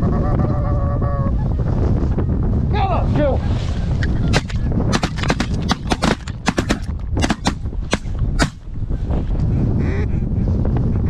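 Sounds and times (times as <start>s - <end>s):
wind rumbling on microphone: 0.0s - 11.0s
shotgun blasts: 4.4s - 8.6s.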